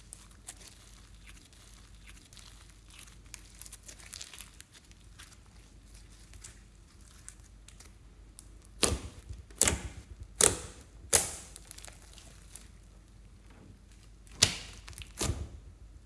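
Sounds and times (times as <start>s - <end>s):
slime popping: 7.7s - 12.8s, 13.9s - 15.6s.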